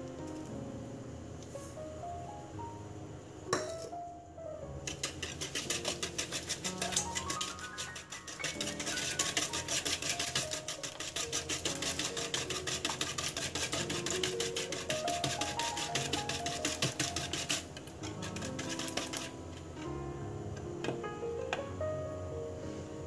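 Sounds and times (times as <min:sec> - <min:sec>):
background music: 0:00.0 - 0:23.0
whisk scraping a mixing bowl: 0:04.8 - 0:19.4.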